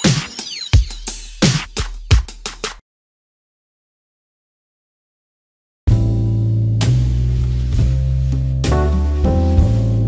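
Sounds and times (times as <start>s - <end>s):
music with steady bass line: 0.0s - 2.8s, 5.9s - 10.0s.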